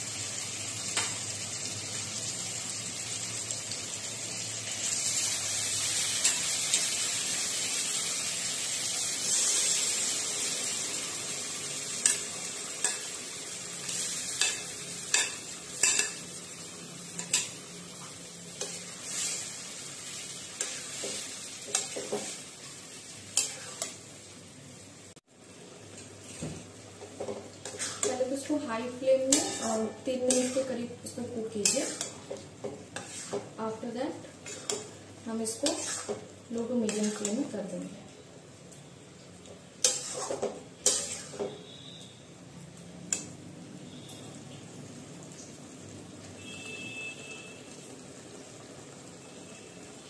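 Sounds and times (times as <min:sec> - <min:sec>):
chicken sizzling in oil: 0:00.0 - 0:50.0
spatula scraping pan: 0:18.6 - 0:19.6, 0:23.4 - 0:24.0, 0:27.0 - 0:28.5, 0:29.2 - 0:33.6, 0:34.4 - 0:37.5, 0:39.8 - 0:41.9.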